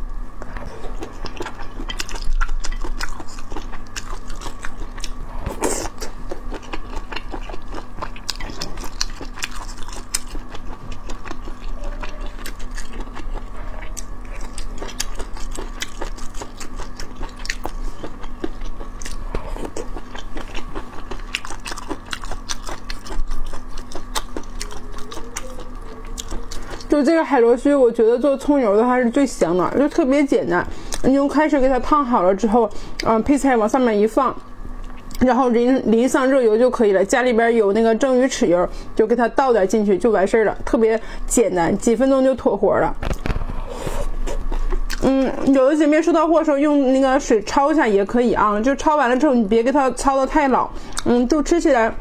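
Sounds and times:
faint hum: 0:00.0 - 0:52.0
close chewing and biting: 0:00.4 - 0:27.2, 0:43.0 - 0:45.6.

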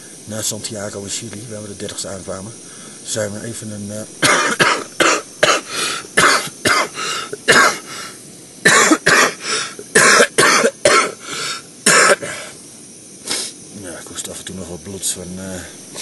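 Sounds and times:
man coughing: 0:04.2 - 0:07.9, 0:08.6 - 0:11.2, 0:11.9 - 0:12.5.

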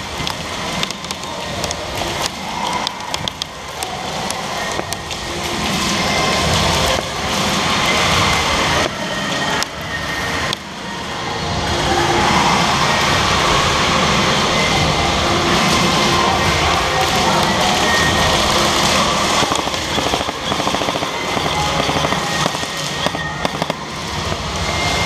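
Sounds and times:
echoing din: 0:14.4 - 0:25.0.

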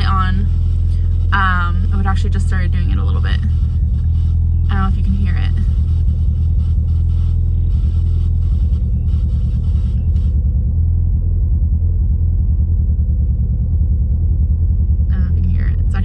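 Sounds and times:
car engine running with misfire: 0:00.0 - 0:16.0.

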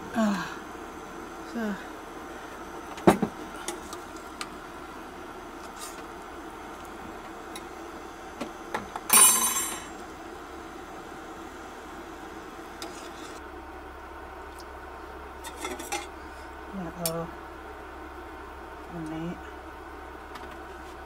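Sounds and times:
background hum: 0:00.0 - 0:21.0
pots and utensils clinking: 0:09.1 - 0:09.9.

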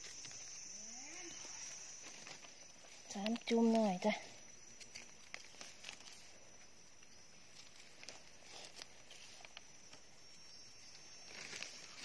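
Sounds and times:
faint high-pitched tone: 0:00.5 - 0:02.5
snaps and rustles in leaves: 0:01.6 - 0:10.1, 0:10.9 - 0:12.0
faint footsteps in leaf litter: 0:11.1 - 0:12.0.

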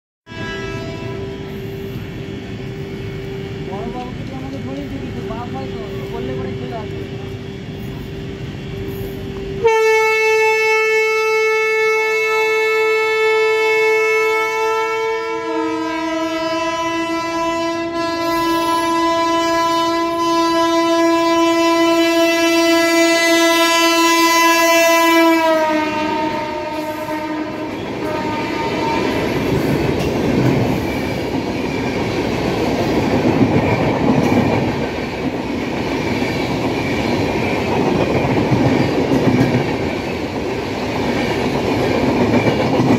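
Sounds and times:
train horn blast: 0:00.3 - 0:02.0, 0:08.7 - 0:29.6
train wheels on rails clattering: 0:27.6 - 0:42.9.

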